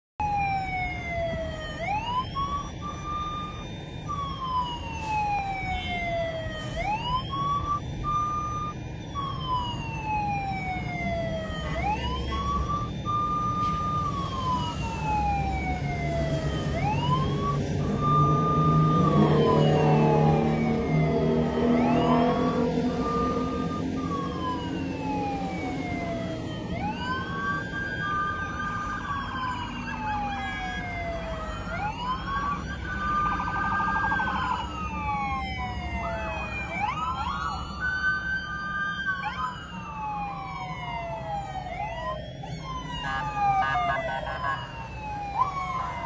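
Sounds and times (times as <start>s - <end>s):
emergency vehicle sirens wailing: 0.2s - 46.0s
heavy vehicles passing rumble: 9.2s - 41.9s.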